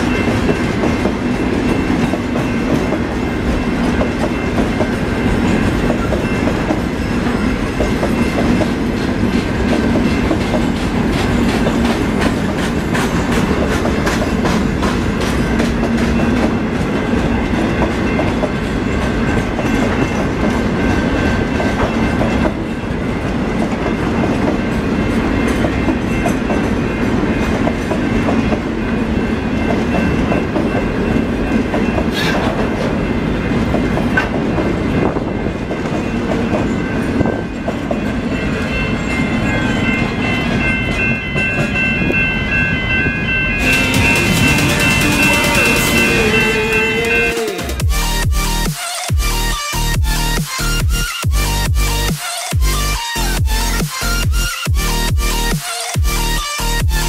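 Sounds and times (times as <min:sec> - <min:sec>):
freight train rumbling past: 0:00.0 - 0:50.6
wheels clicking over rail joints: 0:07.6 - 0:22.6.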